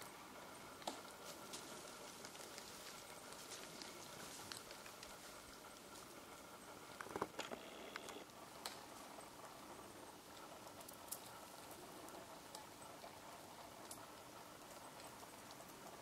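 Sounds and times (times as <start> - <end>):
twigs and bark snapping: 0.8 - 5.6.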